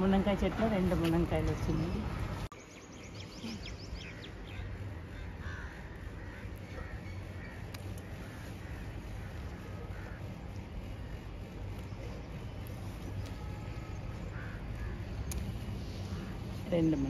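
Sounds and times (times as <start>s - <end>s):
low background rumble: 0.0s - 17.0s
crows cawing: 4.0s - 11.4s, 14.2s - 16.6s.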